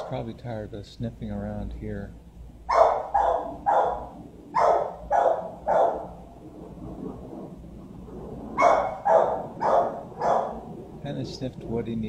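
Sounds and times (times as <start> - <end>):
dog barking: 2.7 - 6.2, 8.6 - 10.7.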